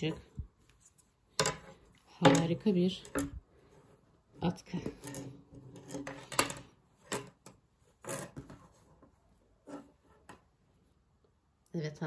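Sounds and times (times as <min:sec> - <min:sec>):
hands rustling knitted scarf: 0:00.1 - 0:02.0.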